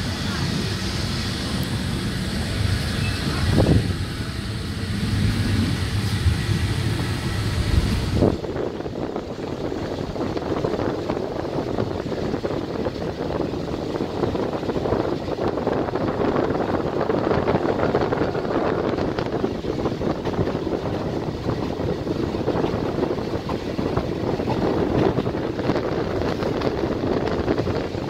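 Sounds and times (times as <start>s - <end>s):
passenger train running: 0.0s - 28.0s
wind buffeting microphone: 0.0s - 28.0s.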